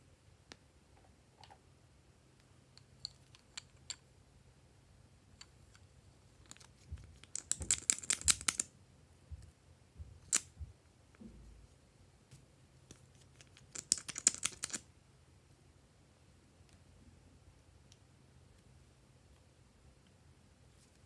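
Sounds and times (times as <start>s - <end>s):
plastic tubes clicking: 7.2s - 8.7s, 13.4s - 14.8s.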